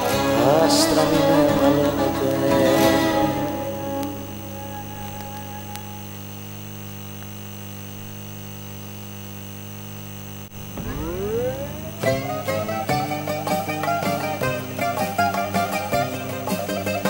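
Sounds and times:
electrical mains hum: 0:00.0 - 0:17.0
record music sliding up in pitch: 0:01.5 - 0:06.8, 0:10.5 - 0:16.2
turntable click: 0:10.5 - 0:13.6.

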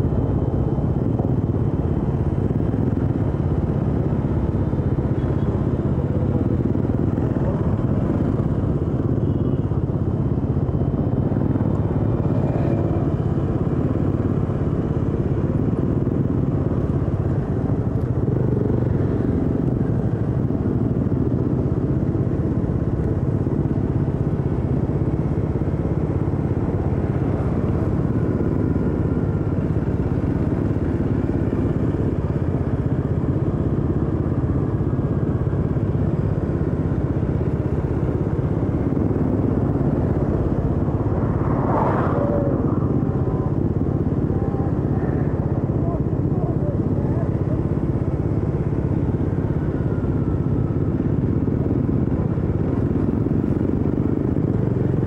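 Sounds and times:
motorcycle engine running: 0:00.0 - 0:55.0.

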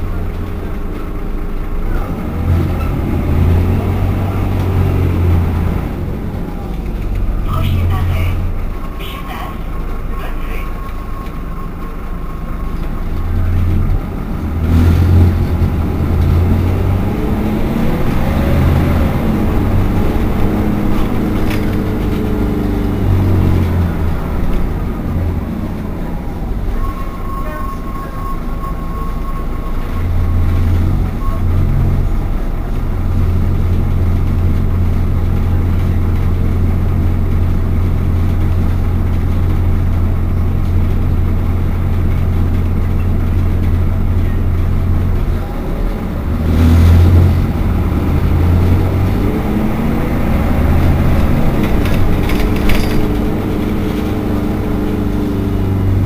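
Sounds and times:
bus diesel engine idling: 0:00.0 - 0:56.0
engine note rising and falling: 0:01.9 - 0:08.6, 0:13.2 - 0:26.7, 0:43.3 - 0:56.0.

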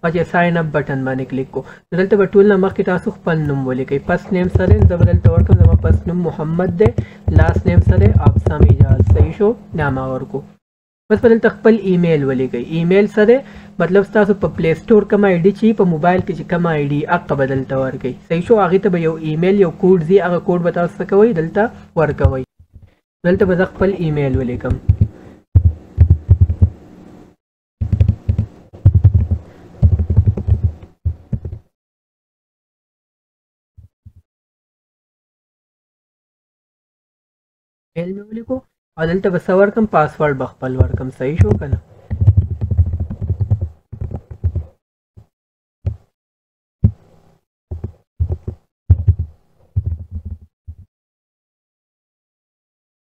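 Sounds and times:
keyboard typing: 0:04.4 - 0:06.1, 0:06.7 - 0:09.3, 0:24.3 - 0:26.7, 0:27.8 - 0:31.6, 0:40.8 - 0:44.8.

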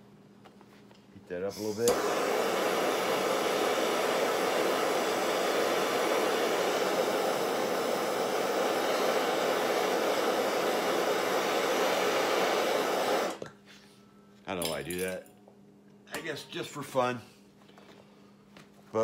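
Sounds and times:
gas torch flame hissing: 0:01.3 - 0:13.5.

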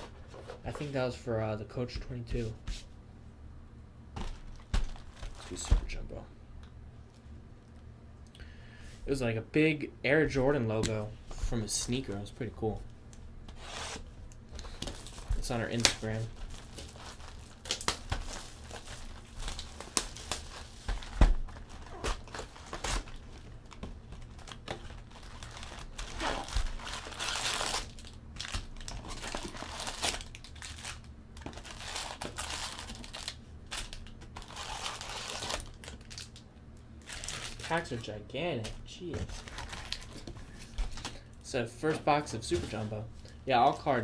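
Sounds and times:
foil packs rustling: 0:04.2 - 0:06.0, 0:13.5 - 0:36.4, 0:37.0 - 0:38.1, 0:39.1 - 0:41.2
plastic wrap crinkling and tearing: 0:14.6 - 0:36.4, 0:37.0 - 0:38.1, 0:39.2 - 0:41.2.

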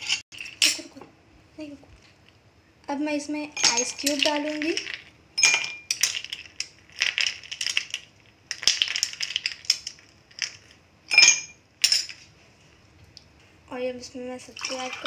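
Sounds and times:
ice cubes clinking in glass: 0:03.6 - 0:12.2.

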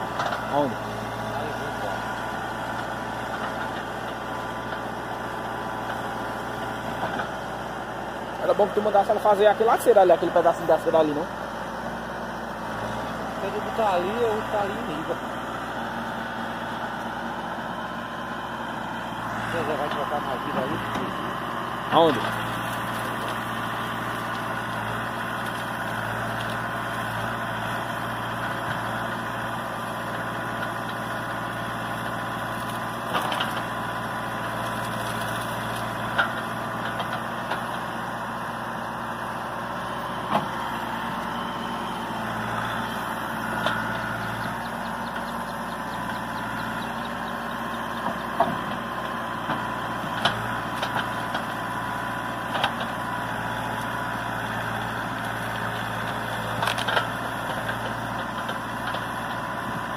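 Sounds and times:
diesel engine running: 0:00.0 - 0:59.9
wood cracking: 0:29.8 - 0:37.8, 0:54.6 - 0:59.5.

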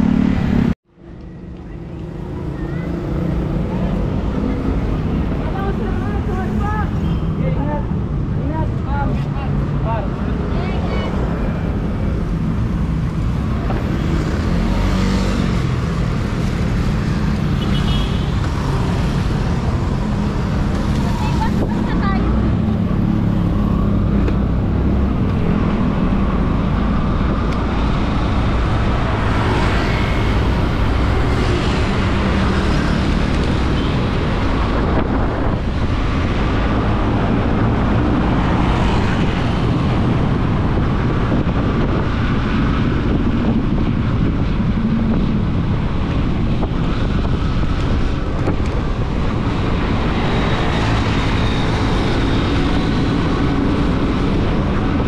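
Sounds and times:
road noise: 0:00.0 - 0:55.0
wind rushing over microphone: 0:18.3 - 0:55.0.

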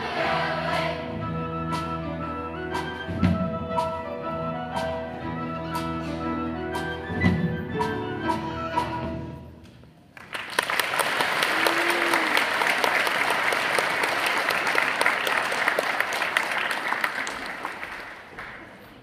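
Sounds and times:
choir and band held notes: 0:00.0 - 0:03.1
audience applause: 0:10.2 - 0:19.0.

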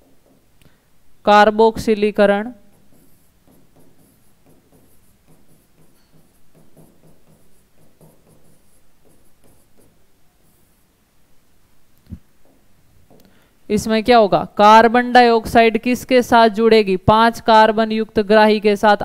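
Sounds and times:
pen strokes on a board: 0:02.6 - 0:11.0.

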